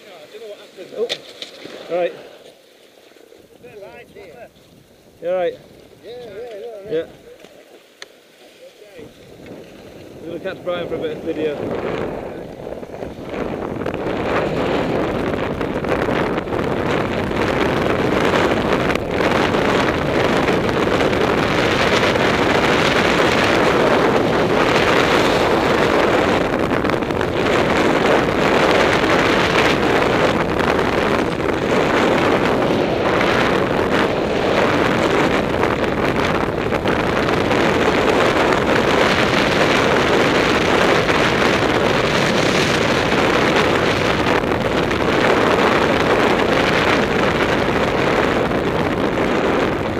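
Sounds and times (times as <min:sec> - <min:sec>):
wind noise on microphone: 0:03.5 - 0:07.4, 0:08.8 - 0:49.9
skis hissing over snow: 0:07.5 - 0:09.3.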